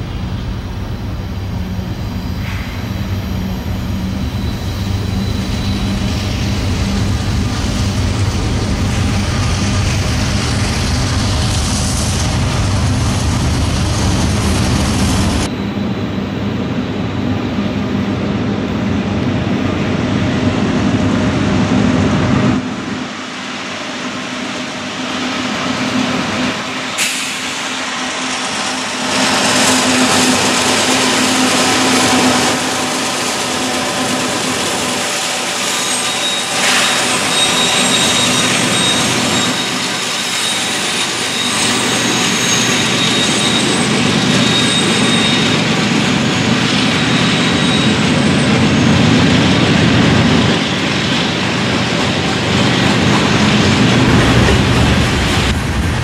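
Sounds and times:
diesel locomotive engine hum: 0.0 - 56.0
train wheels on rails: 0.0 - 56.0
high wheel squeal: 0.4 - 12.2, 27.0 - 55.5.

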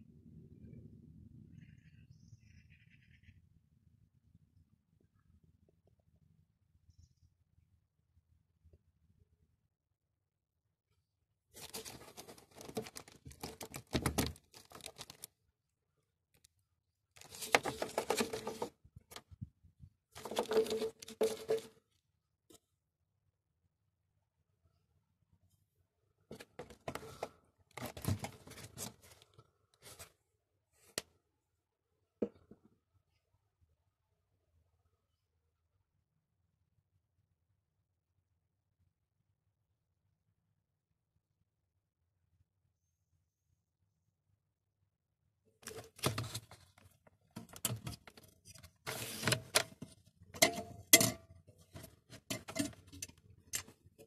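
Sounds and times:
scraping rustle: 20.2 - 21.8.

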